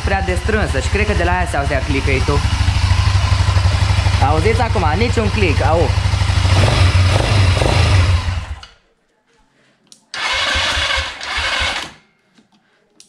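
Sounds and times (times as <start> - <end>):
engine idling: 0.0 - 8.6
electric starter cranking: 10.2 - 12.0.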